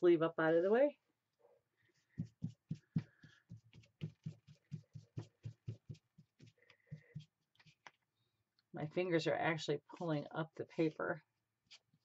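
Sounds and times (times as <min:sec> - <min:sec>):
fingers rubbing paint on paper: 0:01.9 - 0:07.9.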